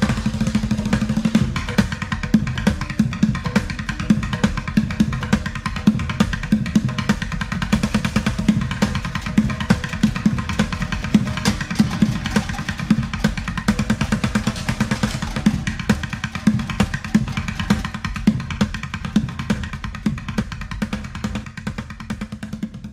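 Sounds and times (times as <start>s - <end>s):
background music with drum beat: 0.0s - 22.9s.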